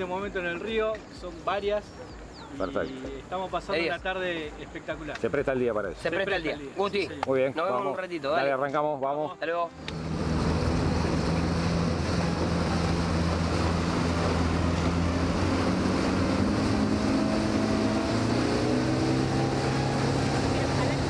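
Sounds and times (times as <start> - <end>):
wind: 0.0 - 21.0
rush of water: 9.7 - 21.0
motorboat engine running: 9.8 - 21.0.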